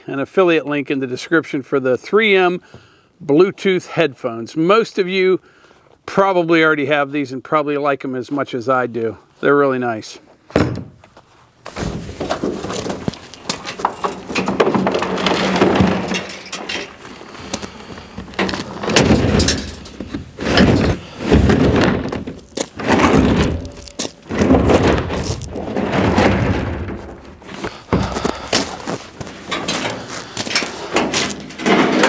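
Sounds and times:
plastic and metal bangs and knocks: 10.5 - 11.1, 11.7 - 32.0.

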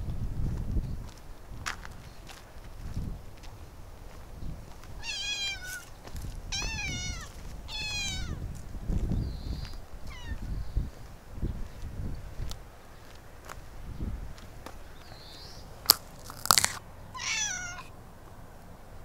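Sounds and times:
cat meowing: 5.0 - 5.8, 6.5 - 8.4, 10.1 - 10.4, 17.2 - 17.9.

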